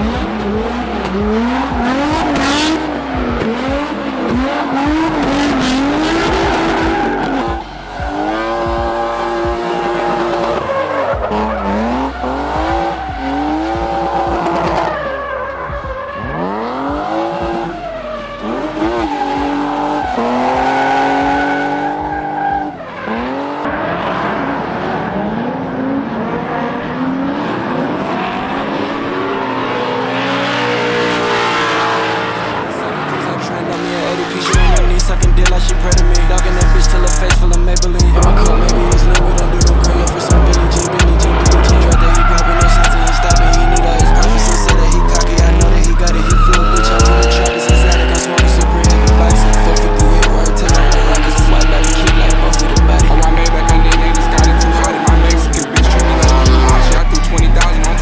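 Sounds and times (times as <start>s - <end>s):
tyres squealing: 0.0s - 23.7s, 29.3s - 58.0s
car engines revving hard: 0.0s - 58.0s.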